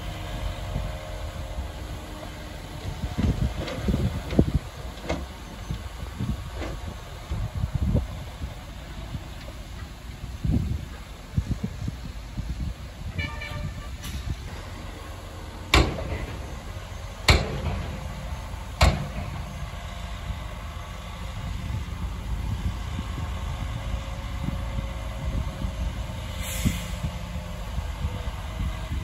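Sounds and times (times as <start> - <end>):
heavy machinery rumbling: 0.0 - 29.0
brief hiss: 13.4 - 14.6, 26.3 - 27.1
sharp bangs: 15.7 - 20.4.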